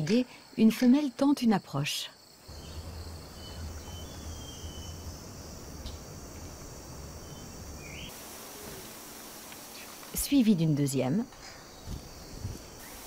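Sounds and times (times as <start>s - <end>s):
insects chorus: 0.0s - 13.0s
rising chirp: 2.5s - 5.2s.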